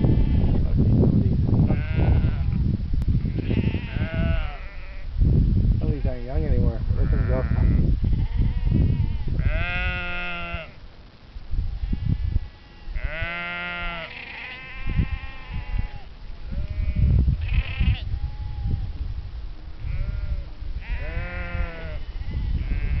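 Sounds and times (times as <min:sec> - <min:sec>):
sheep bleating: 0:01.7 - 0:02.6, 0:03.3 - 0:05.1, 0:07.0 - 0:10.8, 0:11.8 - 0:18.8, 0:19.8 - 0:23.0.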